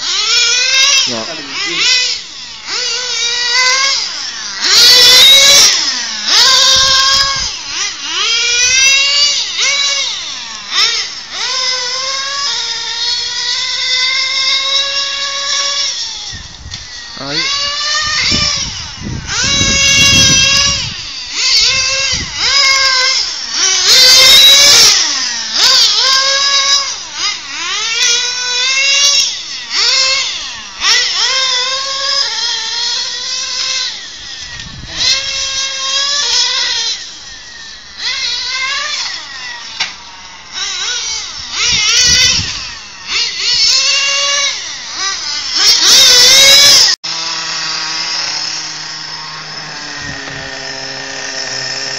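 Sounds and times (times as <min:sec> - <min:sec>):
model car engine revving: 0:00.0 - 0:51.9.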